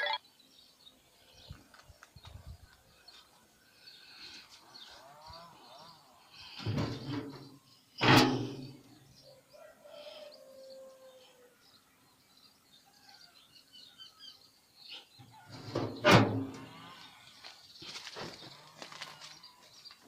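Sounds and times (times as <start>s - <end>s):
small birds chirping: 0.0s - 20.0s
metal lid scraping and clanking: 6.6s - 8.8s, 15.5s - 16.8s.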